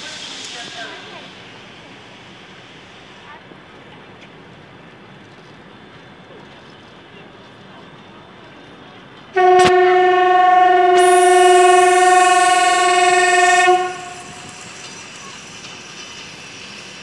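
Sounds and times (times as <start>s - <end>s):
locomotive air horn blast: 9.4s - 14.8s
air hissing: 11.0s - 17.0s.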